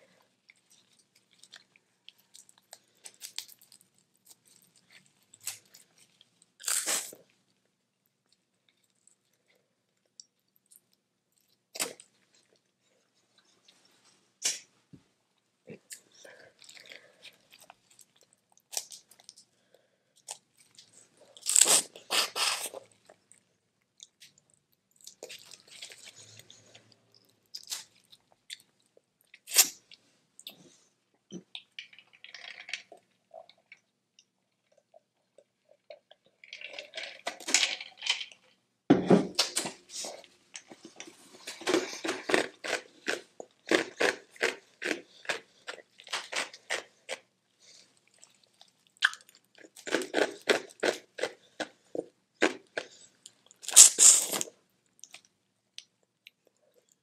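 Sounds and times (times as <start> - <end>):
chewing: 40.0 - 57.0.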